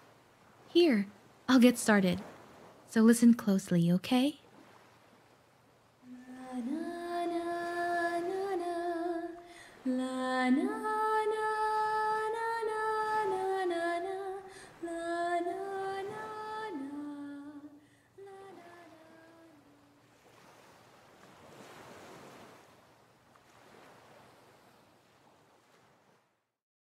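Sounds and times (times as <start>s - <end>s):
ocean waves washing: 0.0s - 26.3s
woman singing wordless melody: 0.8s - 2.2s, 2.9s - 4.4s, 6.0s - 20.0s.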